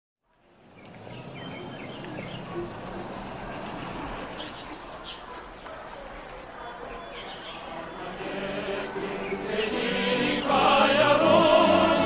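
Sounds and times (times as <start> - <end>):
birds chirping and whistling: 0.8 - 5.4, 6.7 - 9.7, 11.2 - 12.0.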